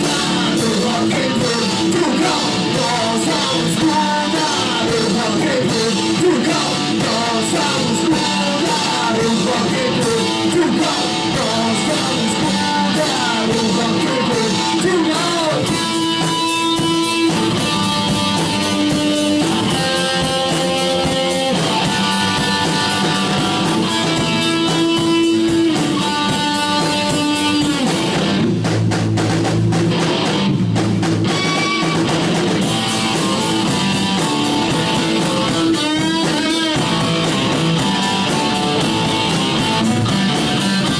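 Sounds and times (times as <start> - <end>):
man singing: 0.0 - 16.8, 34.9 - 37.1
held electric guitar notes: 0.0 - 28.6, 29.7 - 40.9
rock band playing: 0.0 - 40.9.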